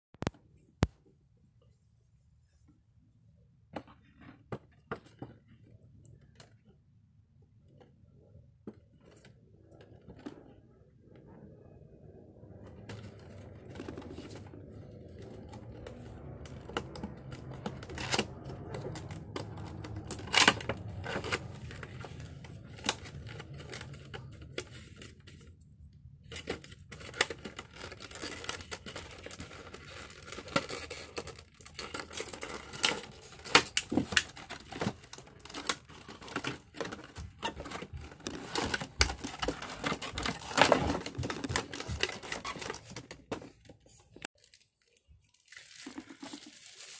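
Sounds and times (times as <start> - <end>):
cardboard and plastic crinkling: 12.6 - 46.9.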